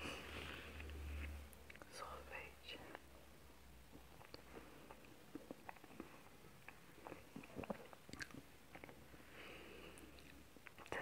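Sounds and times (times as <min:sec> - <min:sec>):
faint chewing mouth smacks: 0:03.9 - 0:09.2, 0:09.9 - 0:11.0.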